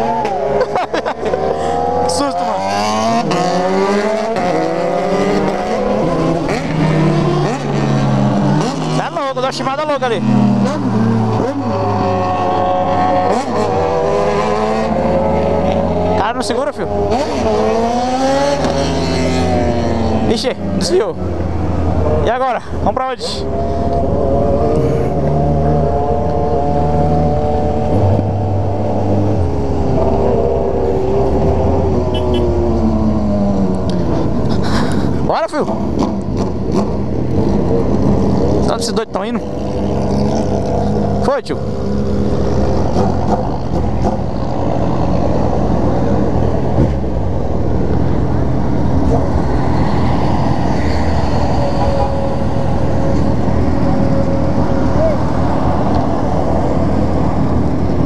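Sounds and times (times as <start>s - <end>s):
motorcycle engine cruising: 0.0s - 58.0s
road traffic passing: 0.0s - 58.0s.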